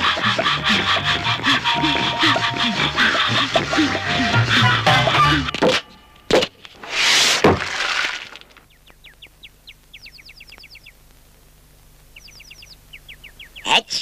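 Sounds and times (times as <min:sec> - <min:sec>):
high falling bird chirps: 0:08.6 - 0:11.1, 0:12.0 - 0:13.9.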